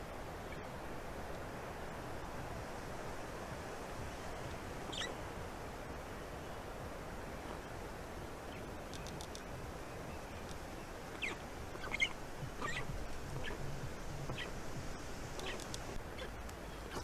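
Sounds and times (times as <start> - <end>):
outdoor forest air hiss: 0.0 - 17.0
bird chirp: 4.1 - 5.3, 7.3 - 14.6, 15.4 - 17.0.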